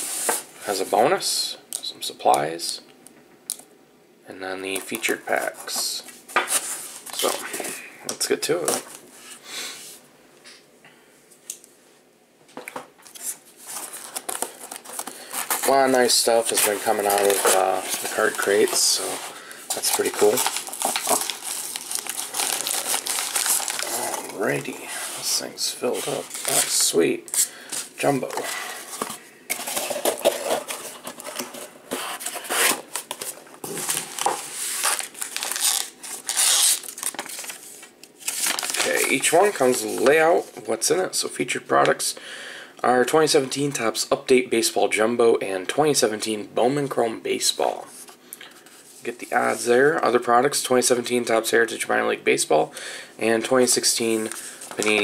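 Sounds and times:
paper and foil wrappers crinkling: 0:13.1 - 0:40.1, 0:54.1 - 0:55.0.

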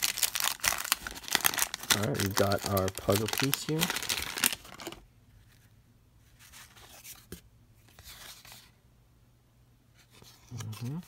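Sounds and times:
paper crinkling: 0:00.0 - 0:05.7.

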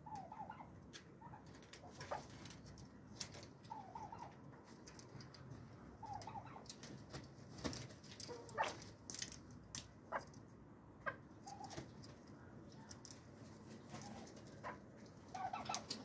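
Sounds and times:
chickens clucking softly: 0:00.0 - 0:07.1, 0:11.0 - 0:16.0.

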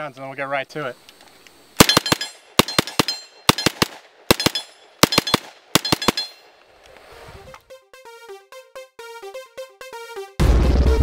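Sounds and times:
submachine gun bursts: 0:01.8 - 0:06.3.

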